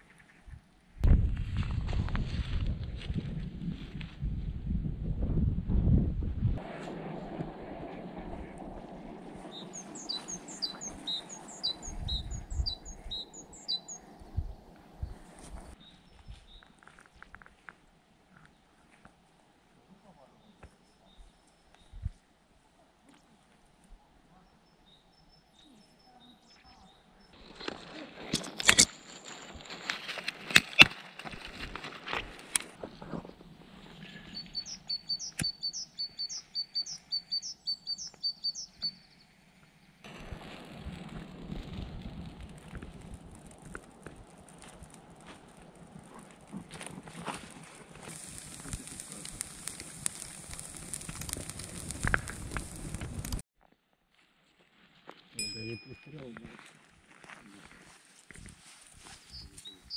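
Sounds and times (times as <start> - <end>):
low rumble: 1.0 - 15.8, 40.1 - 47.1
songbird chirping: 9.5 - 16.8, 24.3 - 27.5, 33.8 - 40.0, 59.2 - 59.9.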